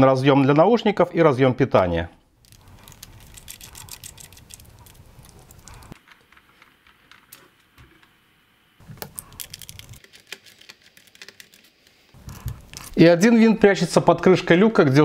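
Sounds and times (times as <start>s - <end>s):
screwdriver clicking and scraping: 2.4s - 6.1s.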